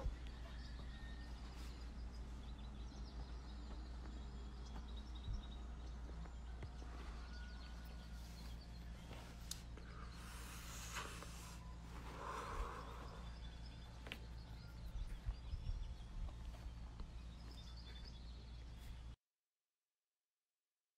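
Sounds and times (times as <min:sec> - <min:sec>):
steady low hum: 0:00.0 - 0:19.2.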